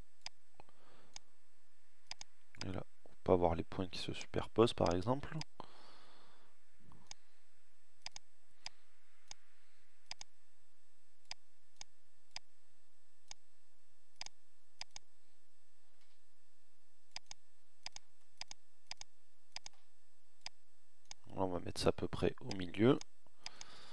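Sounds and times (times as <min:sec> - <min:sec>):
computer mouse clicking: 0:02.0 - 0:02.8, 0:07.0 - 0:07.2, 0:08.0 - 0:09.4, 0:10.0 - 0:10.3, 0:11.2 - 0:12.5, 0:14.2 - 0:15.1, 0:17.1 - 0:19.8, 0:23.4 - 0:23.7.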